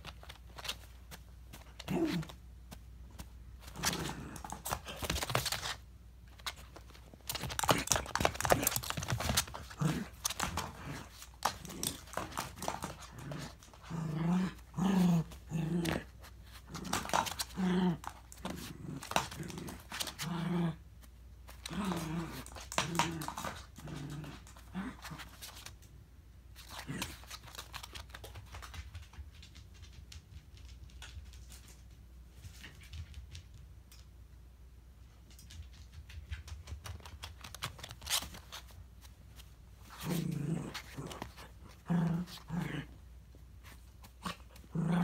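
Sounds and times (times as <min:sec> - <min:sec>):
dog growling grunts: 0:07.6 - 0:20.8, 0:21.6 - 0:25.2, 0:39.9 - 0:43.0, 0:44.2 - 0:45.0.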